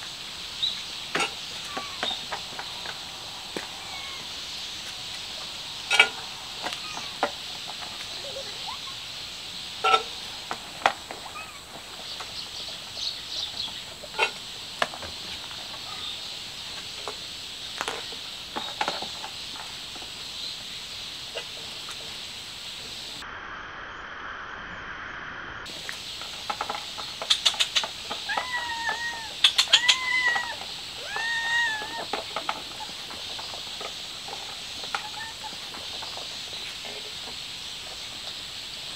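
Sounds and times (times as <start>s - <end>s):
cats meowing: 1.5s - 2.4s, 3.5s - 4.4s, 6.6s - 7.3s, 11.2s - 11.8s, 28.0s - 33.0s, 34.8s - 35.8s.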